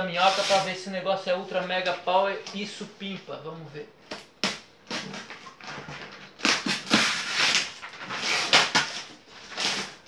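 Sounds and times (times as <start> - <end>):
cardboard tearing and scraping: 0.0 - 0.7, 4.4 - 10.0.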